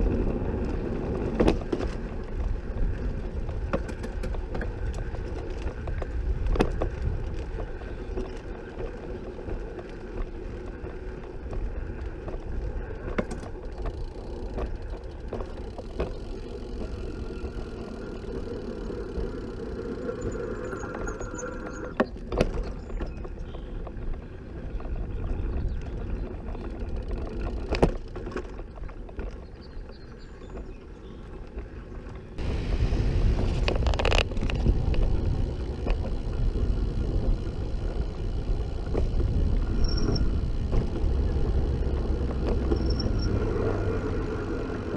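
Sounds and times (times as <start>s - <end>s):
trike rolling on pavement: 0.0s - 44.9s
car traffic: 32.4s - 44.9s
loud low rumble: 32.4s - 44.9s.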